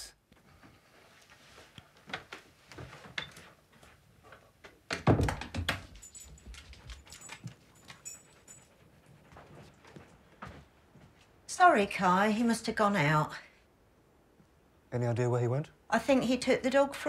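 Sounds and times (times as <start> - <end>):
dog collar tag jingling: 5.7 - 8.8
soft footsteps: 9.0 - 11.4.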